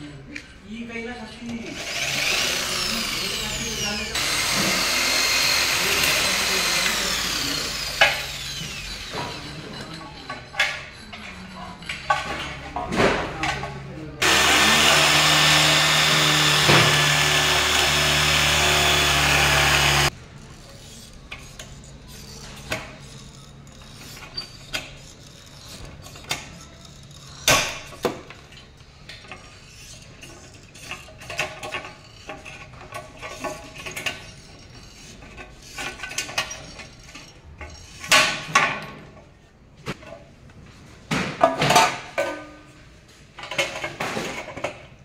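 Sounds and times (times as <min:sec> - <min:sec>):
electric drill boring into metal: 0:01.7 - 0:09.2, 0:14.2 - 0:20.2.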